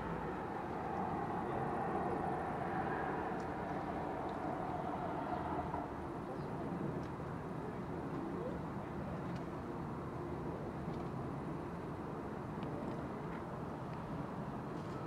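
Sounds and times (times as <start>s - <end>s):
engine passing: 0.0s - 6.4s
distant vehicle hum: 0.0s - 6.8s.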